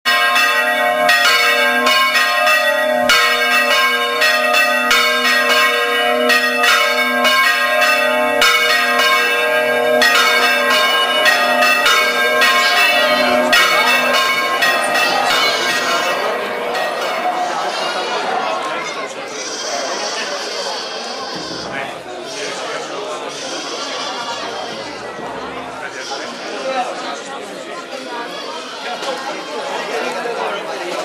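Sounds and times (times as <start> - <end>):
church bells ringing: 0.1 - 19.3.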